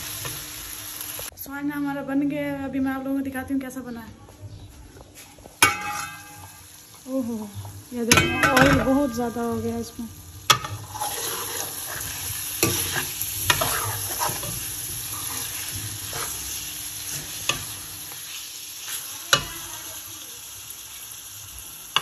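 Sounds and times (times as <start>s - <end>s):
curry sizzling in oil: 0.0s - 1.3s, 5.4s - 22.0s
metal spoon scraping a pan: 5.6s - 6.6s, 10.5s - 19.7s.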